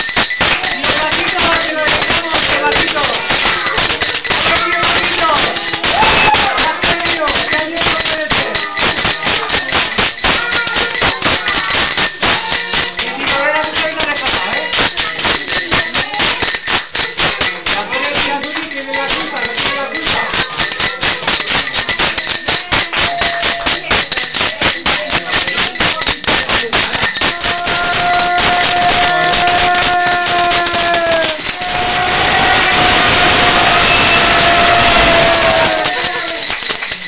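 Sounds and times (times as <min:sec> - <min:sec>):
steady held note: 0:27.2 - 0:36.0.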